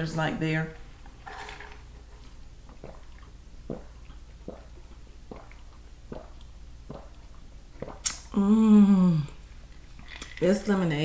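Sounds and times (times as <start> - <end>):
person drinking through a straw: 7.8 - 9.4.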